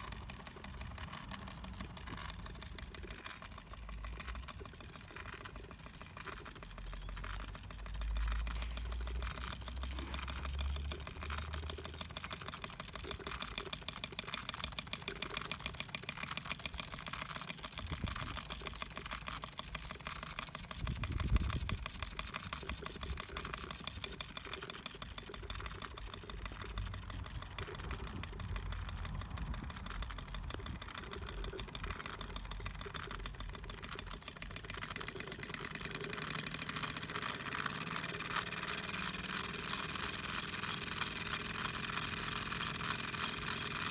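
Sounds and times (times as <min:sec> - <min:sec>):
toy steam engine chuffing: 0:00.0 - 0:43.9.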